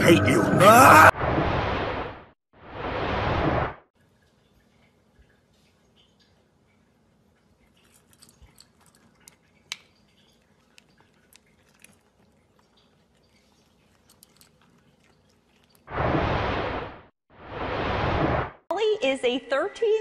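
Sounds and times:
pet kibble being chewed: 7.2s - 15.9s.

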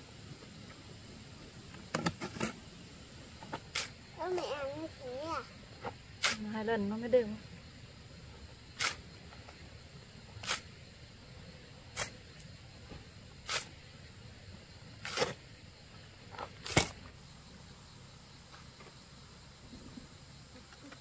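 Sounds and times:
tool scraping wet mortar: 10.4s - 10.6s, 13.5s - 13.7s, 15.0s - 15.4s.

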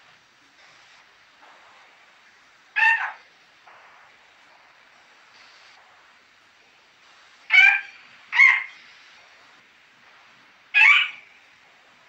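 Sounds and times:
parrot squawking: 2.8s - 3.2s, 7.5s - 8.8s, 10.8s - 11.4s.

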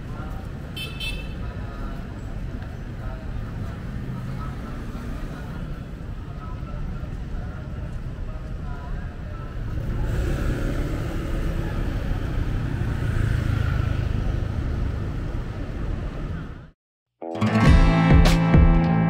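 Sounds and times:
cars and motorbikes passing: 0.0s - 16.8s
music: 17.2s - 19.0s.

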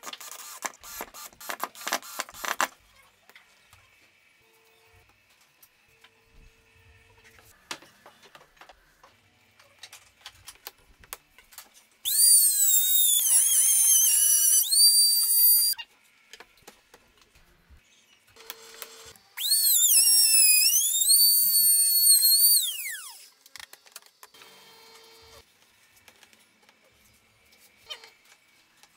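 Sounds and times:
router bit cutting wood: 12.1s - 15.8s, 19.4s - 23.2s
trim router whining: 12.1s - 15.8s, 19.4s - 23.2s.

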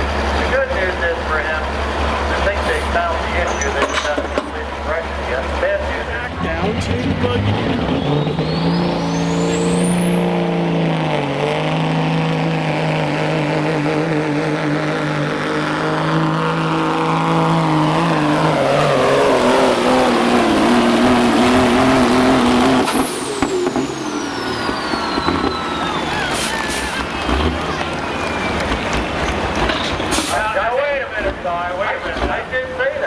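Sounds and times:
truck diesel engine at full throttle: 0.0s - 33.0s
turbo whistle: 7.9s - 10.2s, 24.0s - 27.3s.

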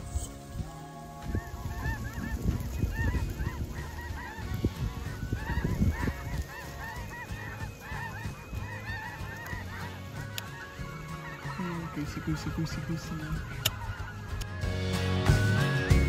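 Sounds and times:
wind rumble on microphone: 0.0s - 9.8s
geese honking: 0.0s - 16.0s.

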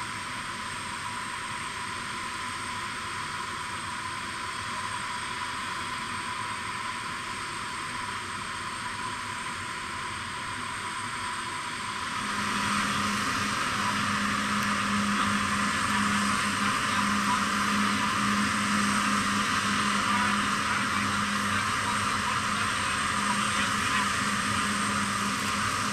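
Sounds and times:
aircraft turbine whine: 0.0s - 25.9s
low beating hum: 12.1s - 25.9s.

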